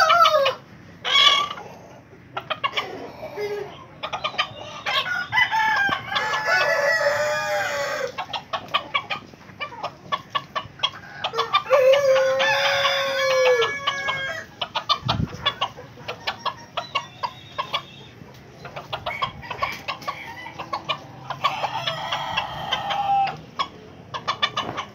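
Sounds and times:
rooster crowing: 0.0 - 1.6, 4.9 - 8.2, 11.0 - 14.6, 19.0 - 23.4
chickens clucking: 0.0 - 24.9.

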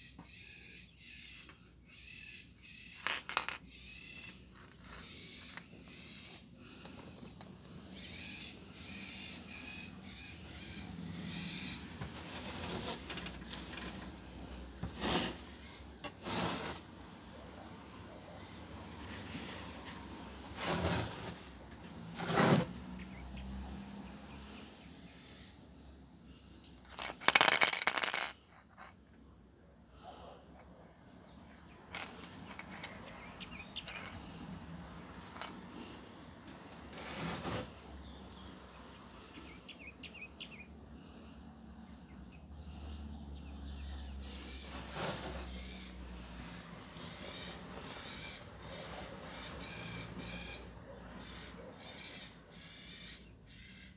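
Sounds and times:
birds calling: 0.0 - 16.0, 31.2 - 34.5, 37.0 - 53.9.

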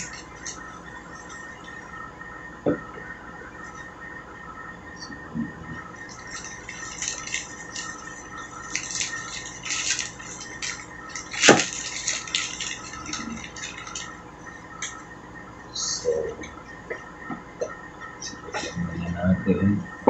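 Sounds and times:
plastic bag and gloves crinkling: 0.0 - 1.8, 6.0 - 15.1.

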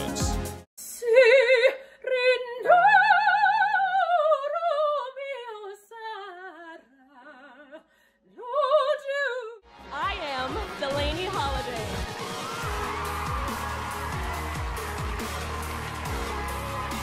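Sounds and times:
woman singing opera: 0.9 - 9.6.

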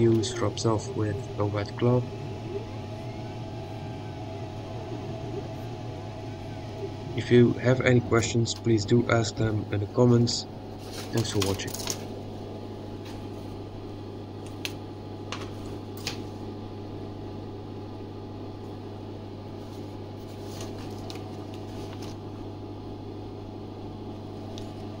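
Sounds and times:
low machine hum: 0.0 - 25.0
plastic sheets clicking and crackling: 10.9 - 12.1, 20.4 - 22.2.

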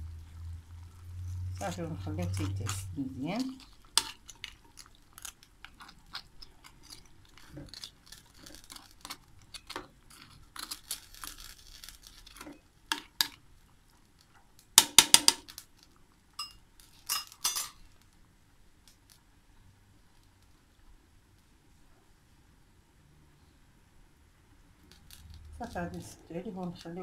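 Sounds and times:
metal spoon scraping metal pot: 1.6 - 4.8.

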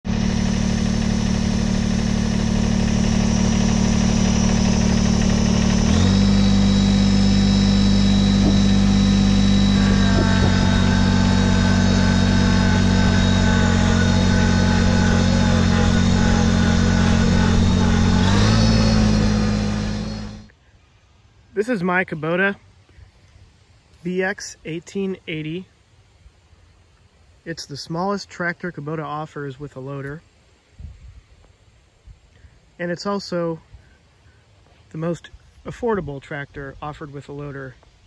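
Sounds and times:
tractor diesel engine running: 0.0 - 20.5
thin high whine: 0.1 - 20.5.

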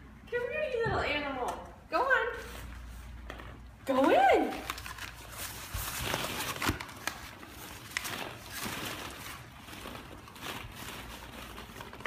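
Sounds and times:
plastic balls rustling and clicking: 3.2 - 12.0.

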